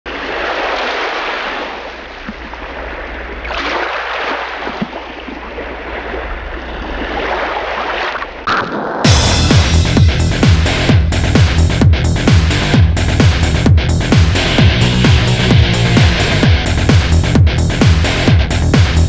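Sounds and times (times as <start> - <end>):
sea waves rushing: 0.1 - 11.0.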